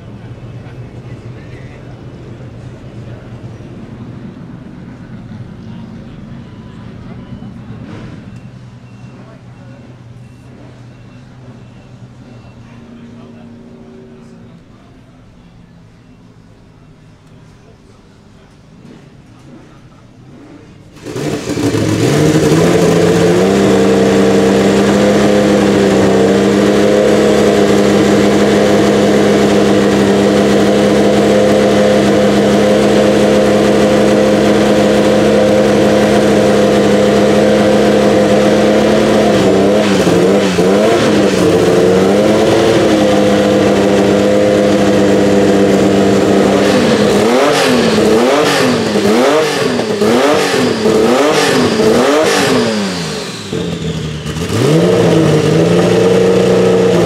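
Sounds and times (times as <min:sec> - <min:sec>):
car engine revving: 0:18.7 - 0:57.0.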